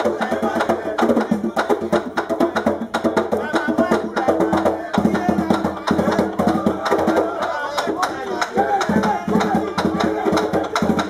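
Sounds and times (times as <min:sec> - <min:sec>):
hand drum beating: 0:00.0 - 0:11.0.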